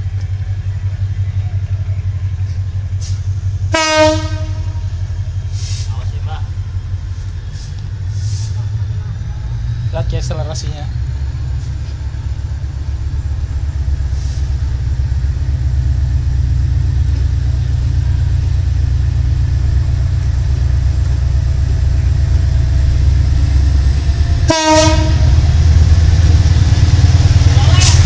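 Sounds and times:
locomotive engine drone: 0.0s - 28.0s
locomotive horn blast: 3.7s - 5.0s, 24.4s - 25.4s.

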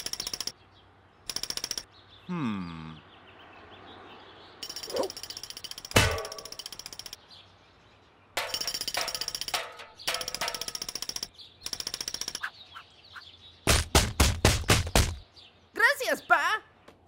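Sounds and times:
cartoon woodpecker drumming: 8.4s - 12.9s.

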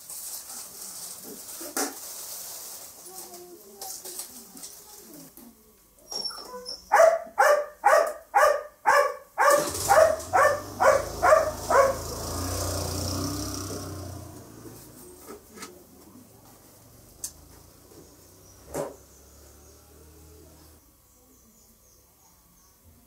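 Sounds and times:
dog barking: 6.9s - 12.3s
vehicle passing: 9.6s - 15.1s, 16.9s - 20.8s.

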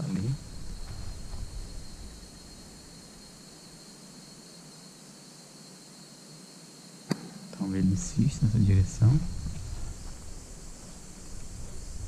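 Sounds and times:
insect drone: 0.0s - 12.0s
low rumble: 0.2s - 3.3s, 7.9s - 12.0s.

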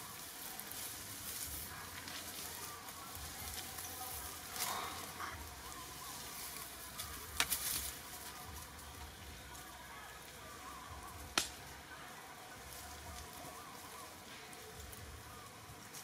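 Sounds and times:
steady hiss: 0.0s - 16.0s
faint bird chirps: 2.5s - 7.4s
sharp crackling clicks: 6.5s - 8.0s, 11.3s - 11.7s.

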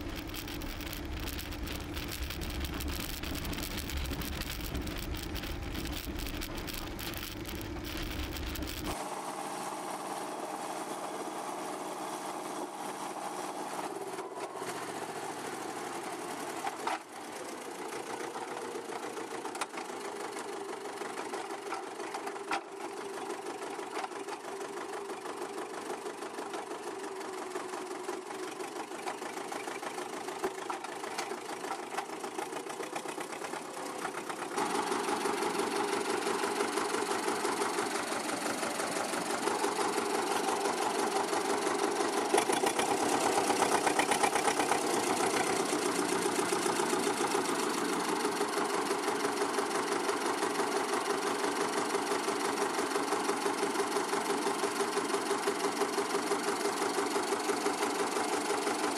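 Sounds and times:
car engine idling: 0.0s - 9.0s.

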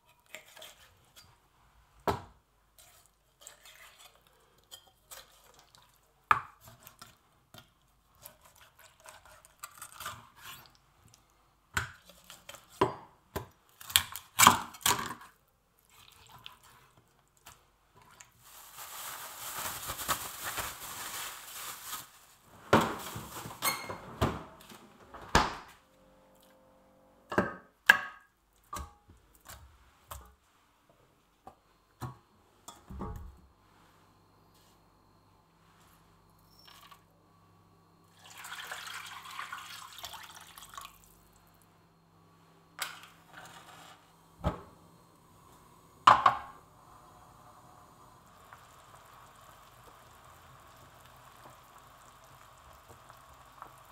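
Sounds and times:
utensils and cookware clattering: 22.9s - 24.2s.

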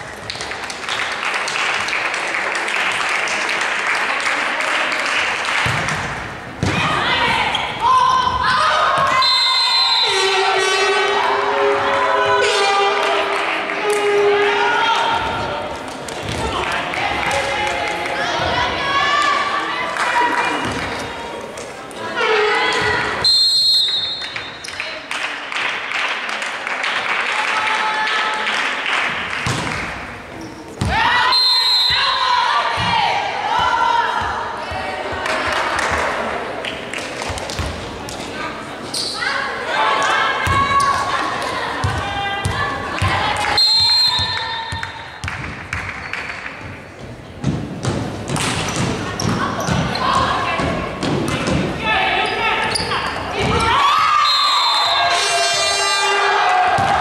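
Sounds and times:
crowd clapping: 0.0s - 6.1s, 15.9s - 18.2s, 24.2s - 29.9s
voices: 6.6s - 25.6s, 38.1s - 45.2s, 48.6s - 57.0s.

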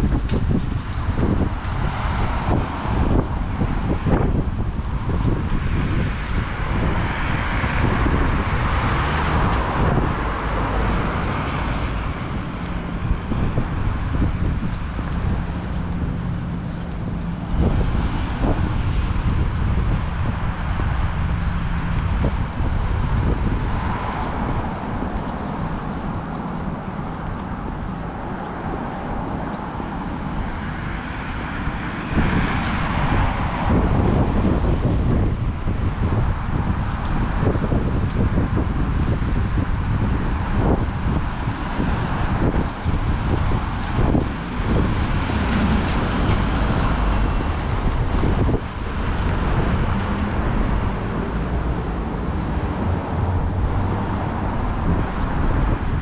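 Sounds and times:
road traffic: 0.0s - 56.0s
wind buffeting microphone: 0.0s - 56.0s
vehicle passing: 38.6s - 56.0s.

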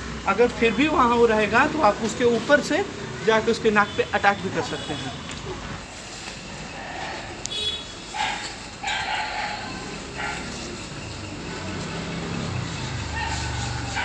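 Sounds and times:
dog barking: 8.1s - 10.7s, 13.1s - 14.0s.

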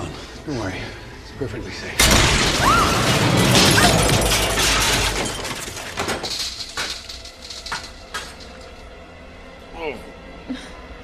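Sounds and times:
glass shattering: 2.0s - 8.8s
pieces knocking and clinking: 2.0s - 8.8s.

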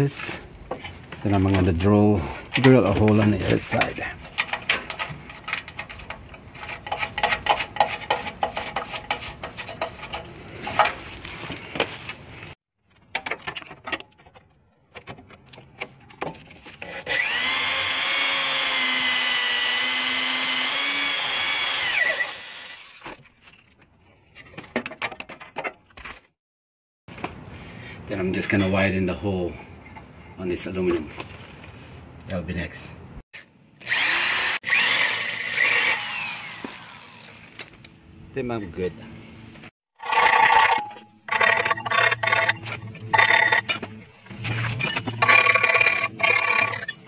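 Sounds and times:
cordless drill boring through metal: 17.0s - 23.0s, 33.8s - 37.6s, 44.9s - 47.0s.

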